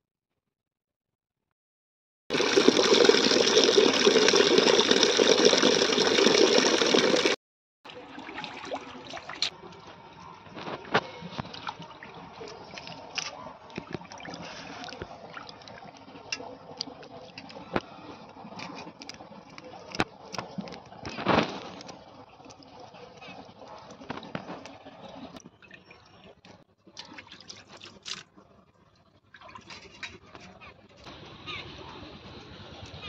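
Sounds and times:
water running loudly: 2.3s - 9.5s
water sloshing and splashing: 2.3s - 30.9s.

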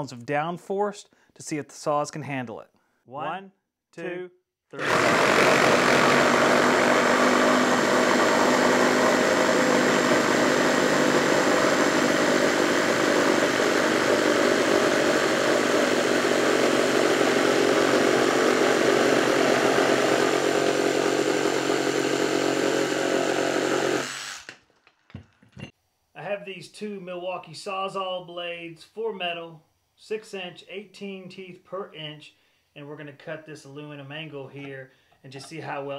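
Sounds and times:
reciprocating saw cutting wood: 4.8s - 24.5s.

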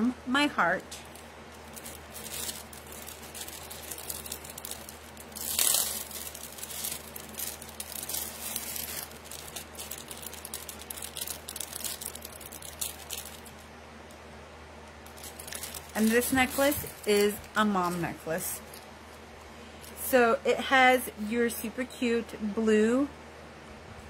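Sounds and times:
plastic bag crinkling: 0.6s - 14.2s, 14.9s - 20.1s.

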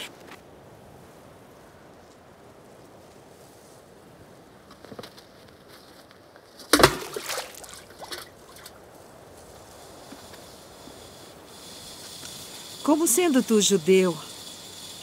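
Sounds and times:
water dripping: 6.7s - 8.8s
water splashing in a well: 6.7s - 8.8s.

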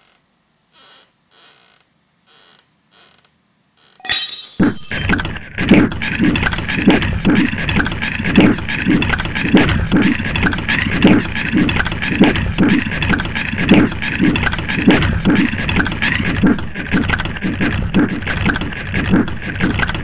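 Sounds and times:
glass breaking crash: 4.0s - 5.2s
rhythmic pounding: 5.8s - 20.0s.

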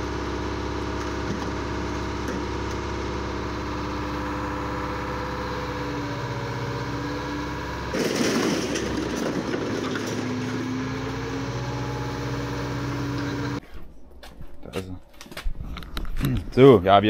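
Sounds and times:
excavator engine and hydraulics: 0.0s - 13.8s
sheet-metal scrap crashing: 7.9s - 10.8s.

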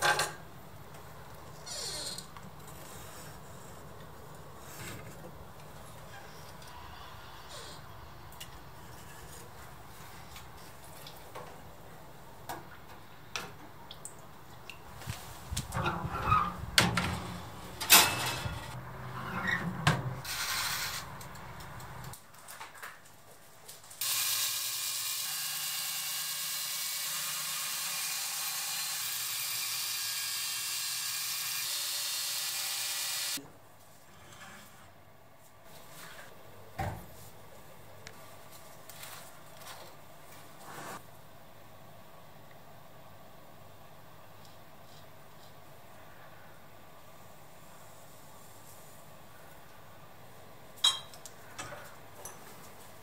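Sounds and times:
belt grinder grinding steel: 24.0s - 33.4s.

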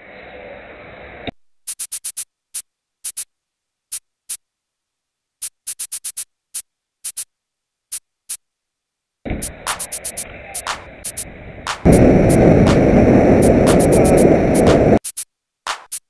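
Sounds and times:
short high-pitched clicks: 1.7s - 3.3s, 5.4s - 7.3s, 9.4s - 11.9s, 12.7s - 16.0s.

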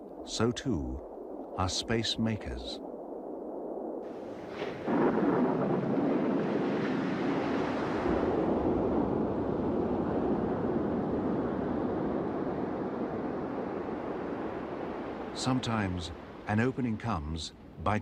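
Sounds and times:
ocean surf rushing: 4.0s - 18.0s.

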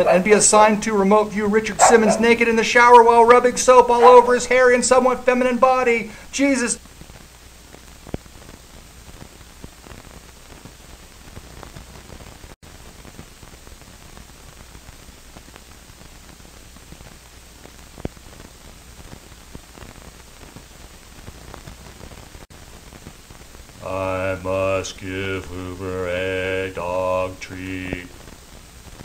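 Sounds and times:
steady hiss: 0.0s - 29.0s
low hum: 23.2s - 28.6s.

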